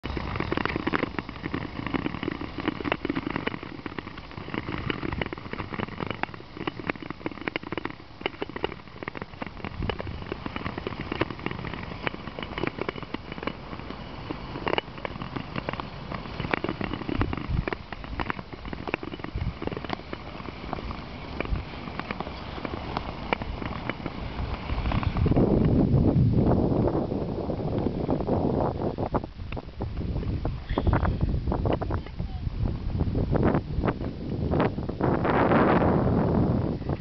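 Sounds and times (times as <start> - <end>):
ice crackling: 0.0 - 25.8
ice skates scraping on ice: 0.1 - 25.7.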